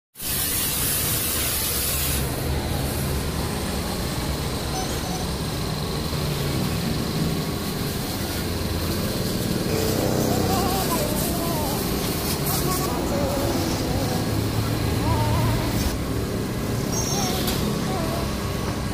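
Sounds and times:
hose spray hissing: 0.2 - 3.1, 7.8 - 18.6.

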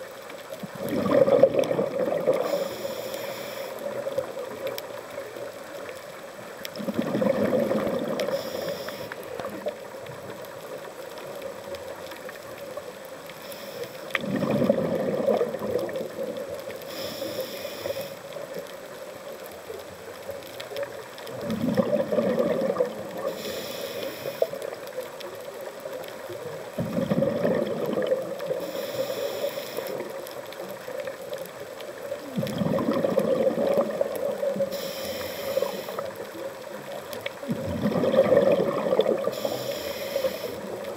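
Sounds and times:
exhaled air bubbling underwater: 0.0 - 40.9
regulator inhale hiss: 2.3 - 4.1, 8.2 - 9.4, 13.3 - 14.2, 16.7 - 18.4, 23.2 - 24.7, 28.5 - 30.2, 34.6 - 36.4, 39.2 - 40.9
steady hum: 2.5 - 3.8, 16.8 - 18.2, 34.7 - 36.1, 39.4 - 40.8.

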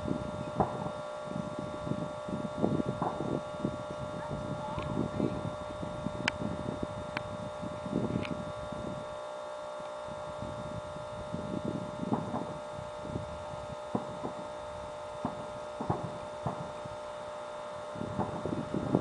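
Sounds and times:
distant fireworks bursting: 0.0 - 7.4, 11.3 - 19.0
steady electronic hum: 0.0 - 19.0.

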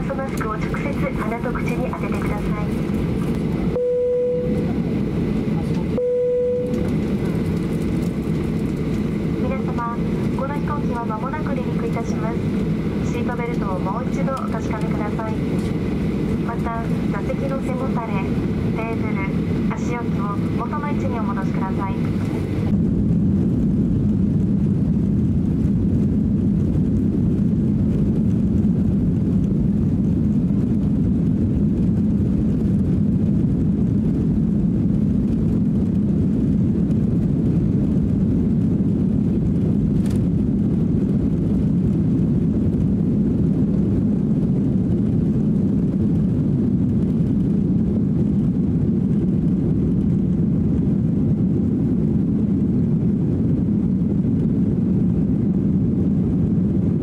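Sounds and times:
jet engines low rumble: 0.0 - 57.0.

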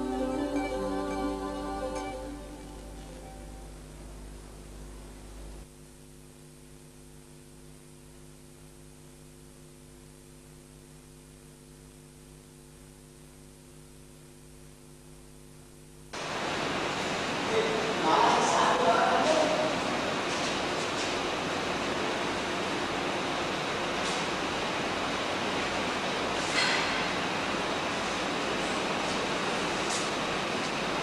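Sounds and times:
soft music: 0.0 - 3.8
electrical mains hum: 0.0 - 31.0.

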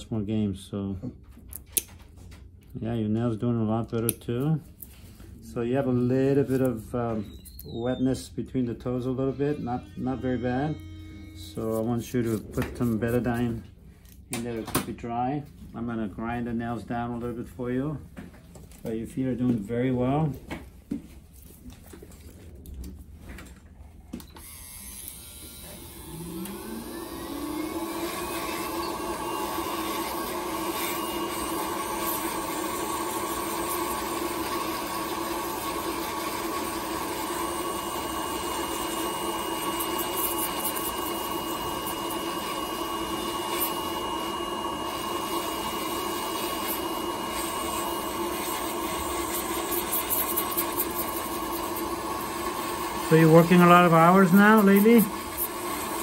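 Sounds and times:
nail drill whining: 24.2 - 56.0.

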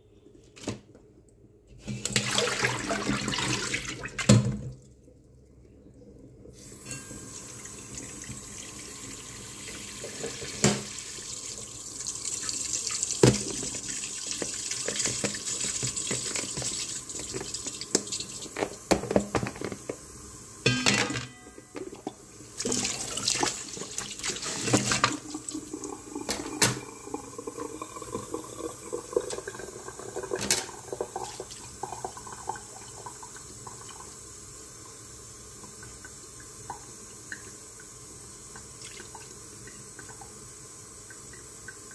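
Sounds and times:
tap running into metal bowl: 10.0 - 11.0, 13.2 - 19.9, 30.4 - 31.4.

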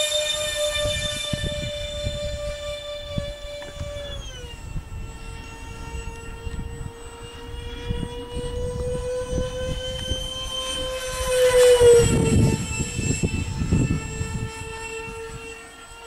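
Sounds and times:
model jet fan whining: 0.0 - 16.0
wind buffeting microphone: 0.0 - 16.0.

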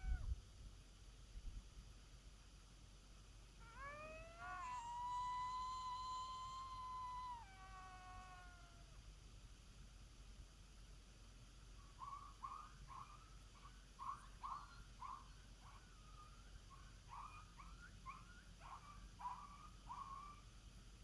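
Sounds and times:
coyote howler call yips: 0.0 - 0.3, 3.6 - 9.0, 11.9 - 20.5.

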